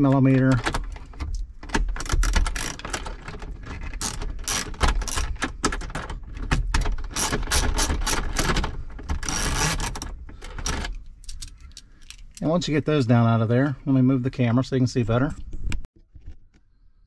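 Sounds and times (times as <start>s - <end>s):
hand ratchet clicking: 7.1s - 8.6s, 9.2s - 10.1s.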